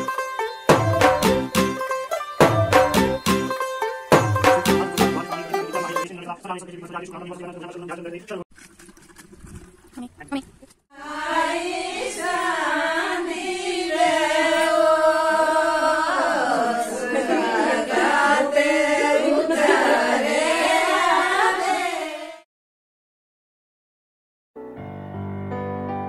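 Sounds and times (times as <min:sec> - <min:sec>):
women singing: 0:10.9 - 0:22.4.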